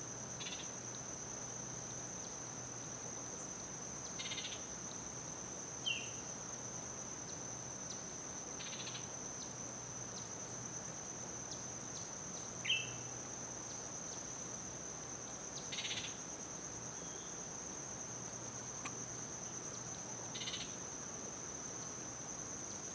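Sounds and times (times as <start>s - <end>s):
buzzy pulsed insect calls: 0.0s - 22.9s
sharp insect chirps: 0.0s - 22.9s
high-pitched insect drone: 3.6s - 5.0s, 15.5s - 18.0s, 18.6s - 21.1s.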